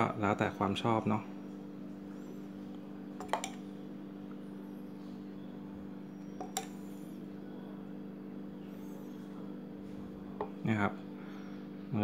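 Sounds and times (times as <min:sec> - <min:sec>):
steady low hum: 0:00.0 - 0:12.0
metal spoon clinking: 0:03.2 - 0:03.6.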